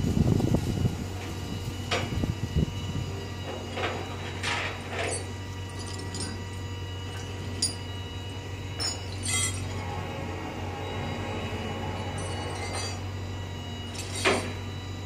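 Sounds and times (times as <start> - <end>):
truck engine idling: 2.7 - 15.0
metal chains clinking and rattling: 4.8 - 6.5, 8.8 - 9.8, 12.0 - 13.1, 13.9 - 14.6.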